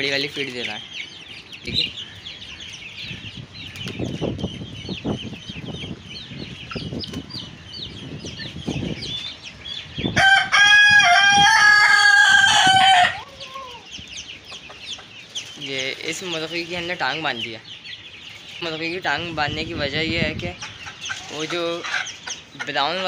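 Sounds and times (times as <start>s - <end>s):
chicks peeping: 0.0s - 23.0s
rooster crowing: 10.2s - 13.3s.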